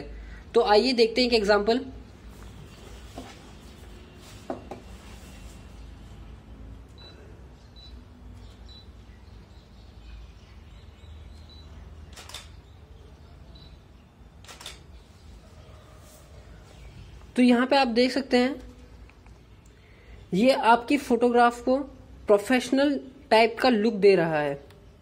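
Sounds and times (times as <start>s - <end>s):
camera shutter clicks: 12.1s - 12.6s, 14.4s - 14.9s.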